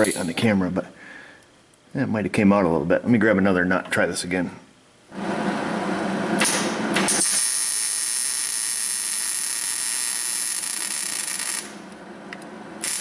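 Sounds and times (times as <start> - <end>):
welding arc crackling: 6.4 - 11.9, 12.8 - 13.0.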